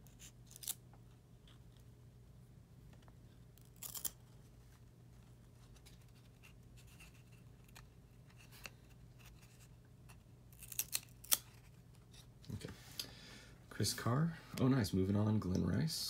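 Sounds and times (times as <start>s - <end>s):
cards snapping: 10.5s - 11.7s.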